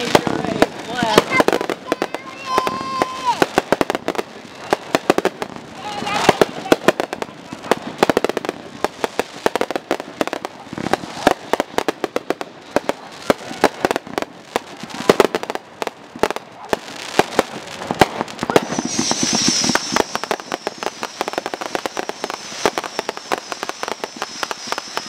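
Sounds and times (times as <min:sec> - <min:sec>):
firework shells bursting: 0:00.0 - 0:25.0
high-pitched hiss: 0:16.2 - 0:25.0.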